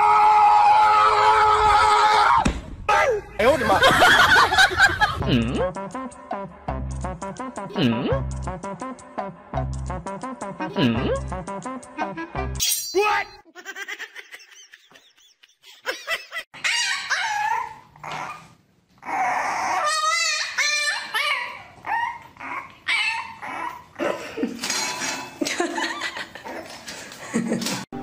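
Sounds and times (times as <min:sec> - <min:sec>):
puppy whining and yipping: 0:16.6 - 0:24.0.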